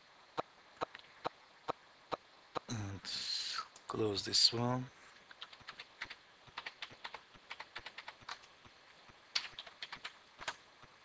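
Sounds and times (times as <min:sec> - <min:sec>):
keyboard typing: 0:05.3 - 0:10.6.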